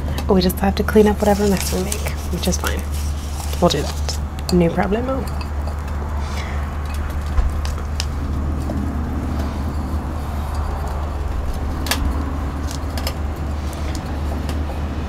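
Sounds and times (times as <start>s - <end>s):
low outdoor rumble: 0.0s - 15.0s
soft rustles of soil: 0.6s - 4.5s.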